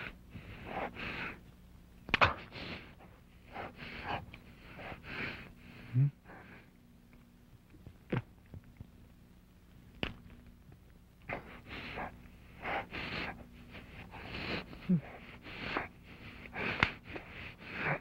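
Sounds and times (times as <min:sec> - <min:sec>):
man breathing heavily: 0:00.0 - 0:01.5, 0:02.3 - 0:06.8, 0:11.3 - 0:18.0.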